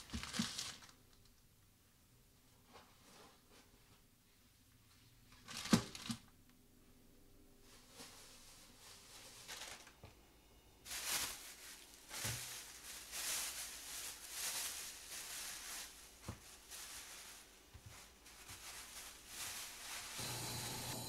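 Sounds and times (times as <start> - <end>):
plastic bags crinkling: 0.0 - 1.0, 5.4 - 6.2, 8.1 - 10.0, 10.8 - 21.0.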